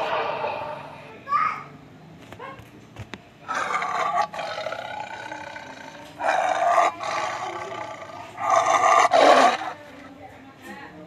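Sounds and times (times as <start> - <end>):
lion roaring: 0.0 - 1.2, 3.5 - 9.8.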